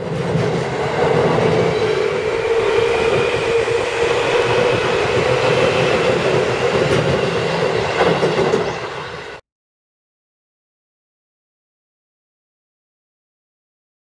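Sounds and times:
train rumbling across bridge: 0.0 - 9.4
train wheel clacks: 0.0 - 9.4.

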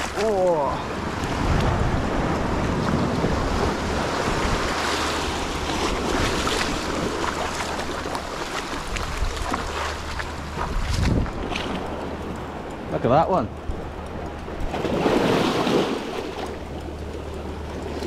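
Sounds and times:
sea water washing over rocks: 0.0 - 12.0, 14.6 - 16.8
wind buffeting microphone: 0.0 - 18.0.

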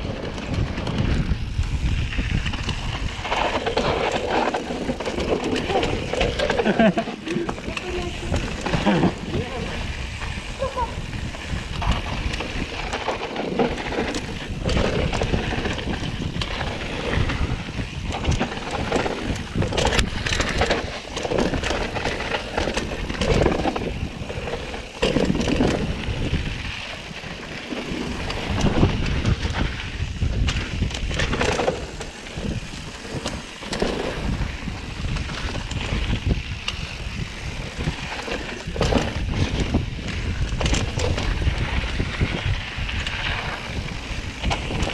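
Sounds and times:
bike rattling over bumps: 0.0 - 44.9
bike tyres on dirt: 0.0 - 44.9
wind on microphone: 0.0 - 44.9.

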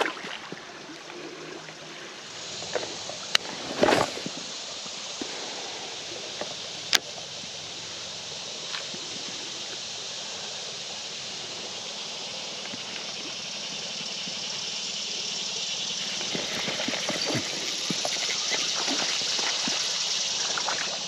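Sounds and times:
creek water running over rocks: 0.0 - 21.0
small clicks and splashes: 16.1 - 21.0.

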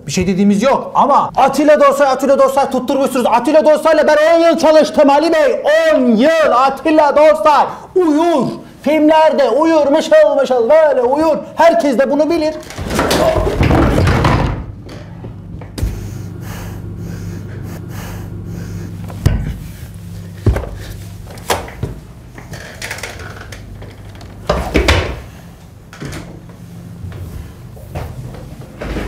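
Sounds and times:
steady low hum: 12.6 - 29.0
chair and desk knocking: 12.7 - 14.8.

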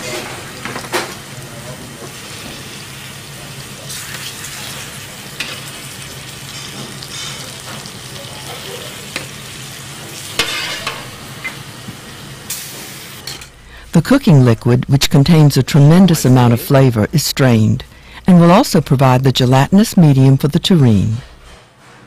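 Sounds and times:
sizzling hiss: 0.0 - 14.0
kitchen hum: 0.0 - 22.0.

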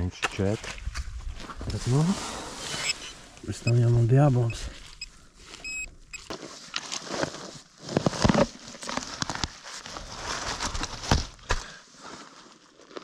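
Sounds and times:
digging in loose soil: 0.0 - 13.0
brief high beep: 5.6 - 6.3.

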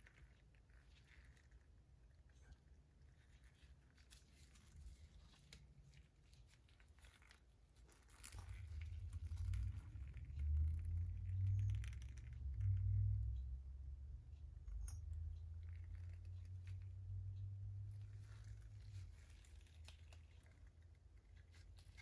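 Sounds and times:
gloved hands crinkling and rustling: 0.0 - 13.2, 14.9 - 22.0
low rumble: 8.3 - 19.4.

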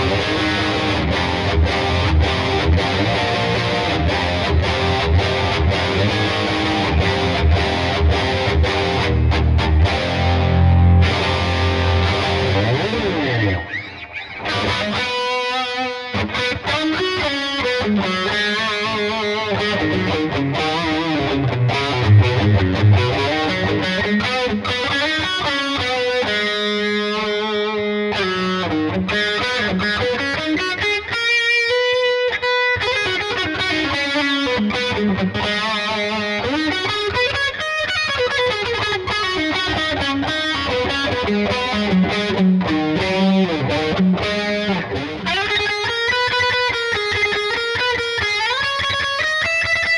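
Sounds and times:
distorted electric guitar solo: 0.0 - 49.9.

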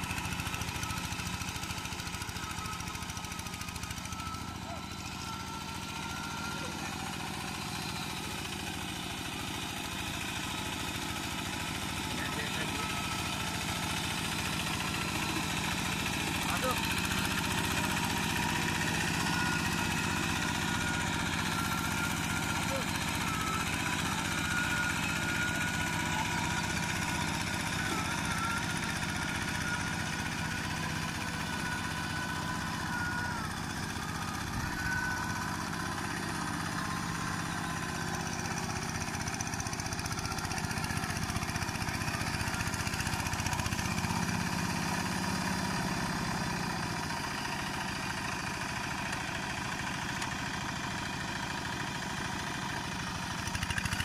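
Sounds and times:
diesel engine running: 0.0 - 54.0
tractor churning through mud: 0.0 - 54.0.

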